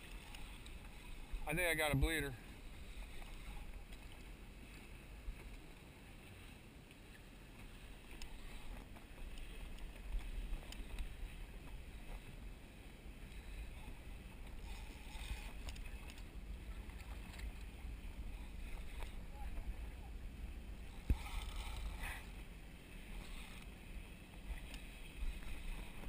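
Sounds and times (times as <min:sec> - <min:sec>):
faint clicks: 0:00.0 - 0:01.0, 0:08.0 - 0:11.1, 0:14.4 - 0:17.7, 0:24.5 - 0:26.0
water around boat hull: 0:00.0 - 0:26.0.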